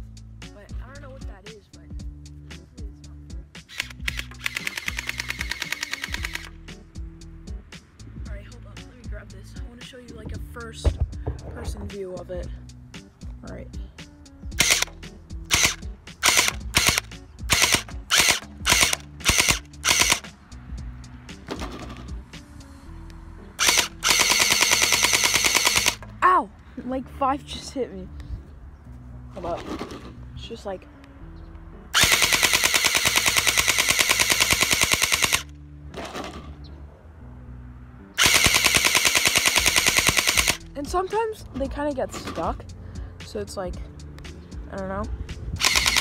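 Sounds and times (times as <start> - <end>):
toy blaster firing full auto: 3.7 - 6.5, 14.6 - 14.9, 15.5 - 20.2, 23.6 - 26.0, 32.0 - 35.5, 38.2 - 40.6, 45.6 - 46.0.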